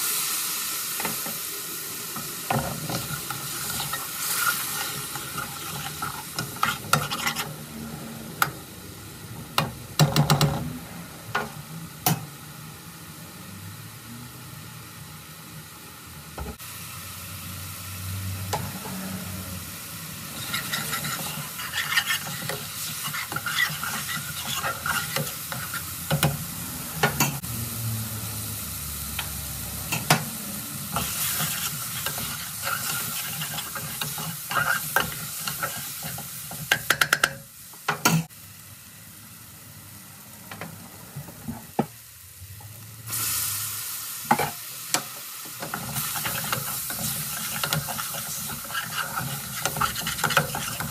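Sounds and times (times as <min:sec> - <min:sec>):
curry sizzling in a hot pan: 0:00.0 - 0:10.6, 0:11.2 - 0:50.9
utensil scraping and tapping pan: 0:20.4 - 0:26.4, 0:45.6 - 0:50.9.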